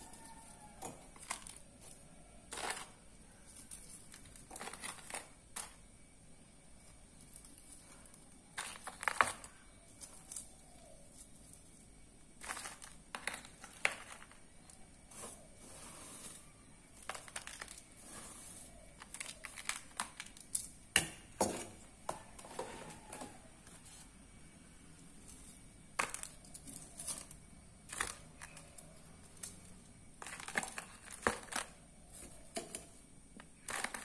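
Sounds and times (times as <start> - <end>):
plastic container crinkling: 12.4 - 14.4, 30.2 - 32.4.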